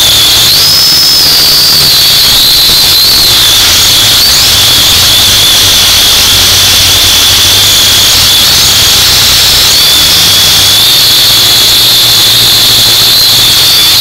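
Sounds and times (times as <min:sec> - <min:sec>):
quadcopter motors whining: 0:00.0 - 0:14.0.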